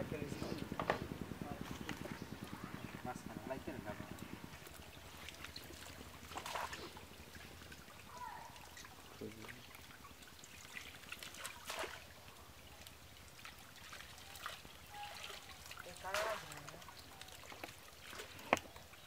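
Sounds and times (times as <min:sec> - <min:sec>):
water splashing and dribbling: 0:01.6 - 0:19.0.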